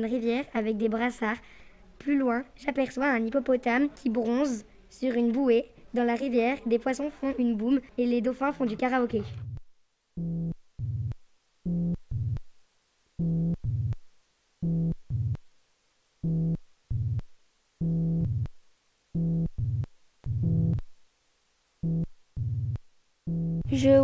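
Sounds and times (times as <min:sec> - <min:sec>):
low buzzy synthesizer notes: 0:09.2 - 0:09.6, 0:10.2 - 0:12.4, 0:13.2 - 0:14.0, 0:14.6 - 0:15.4, 0:16.2 - 0:17.2, 0:17.8 - 0:18.5, 0:19.2 - 0:20.8, 0:21.8 - 0:24.0.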